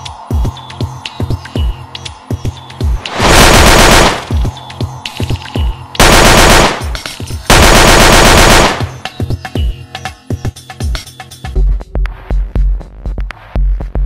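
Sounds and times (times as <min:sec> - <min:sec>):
electronic music with kick drum: 0:00.0 - 0:03.1, 0:08.9 - 0:14.0
machine-gun fire bursts: 0:03.1 - 0:04.6, 0:06.0 - 0:09.1.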